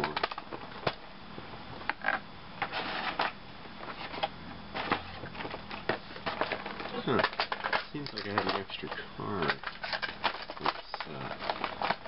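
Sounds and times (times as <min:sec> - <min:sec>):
plastic parts clicking and tapping: 0:04.2 - 0:12.0.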